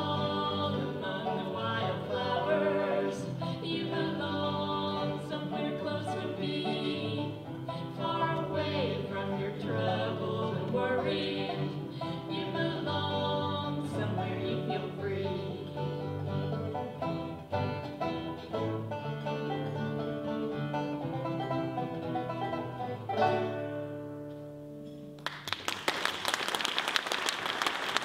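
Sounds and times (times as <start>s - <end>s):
acoustic guitar: 0.0s - 25.2s
banjo: 0.0s - 25.2s
audience applause: 25.2s - 28.0s.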